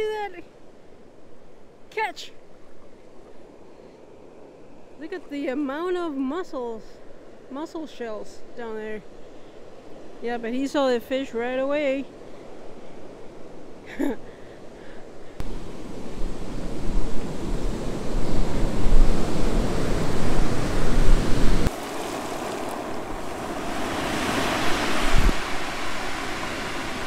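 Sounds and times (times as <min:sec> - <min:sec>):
surf washing over cobble beach: 0:15.4 - 0:27.0
wind rumbling on microphone: 0:15.4 - 0:27.0.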